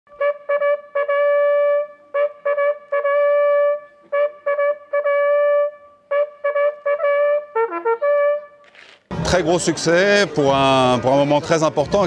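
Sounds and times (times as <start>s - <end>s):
two bugles playing: 0.1s - 8.9s.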